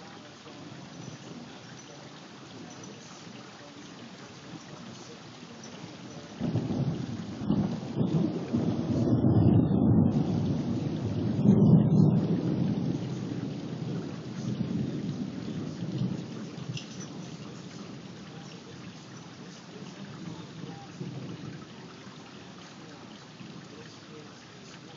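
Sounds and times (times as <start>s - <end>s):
thunder rolling: 0.0s - 23.9s
steady rain: 0.0s - 24.9s.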